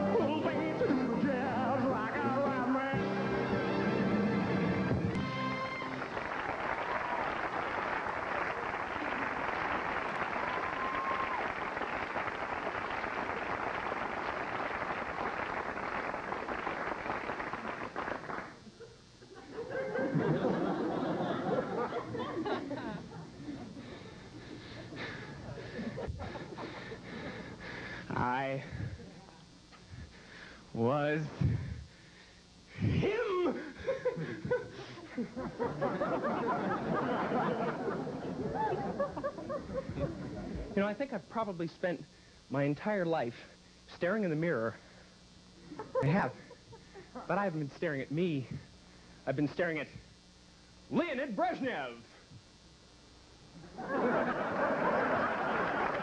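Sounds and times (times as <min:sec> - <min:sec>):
audience applauding and cheering: 0:03.4 - 0:18.6, 0:54.4 - 0:56.0
audience laughter: 0:18.8 - 0:27.0, 0:33.8 - 0:40.8, 0:53.6 - 0:56.0.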